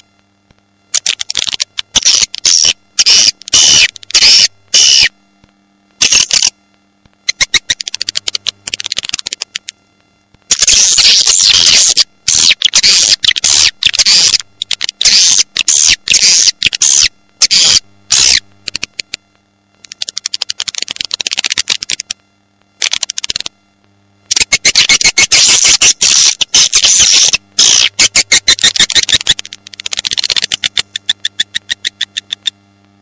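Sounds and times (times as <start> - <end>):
rapid clicking: 7.3 - 9.7, 19.8 - 22.2, 24.3 - 32.6.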